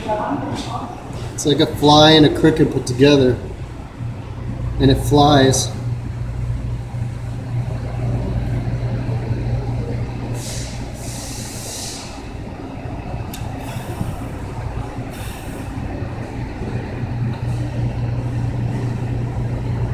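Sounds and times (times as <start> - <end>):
low mechanical hum: 0.0 - 19.9
burst of hiss: 10.4 - 12.2.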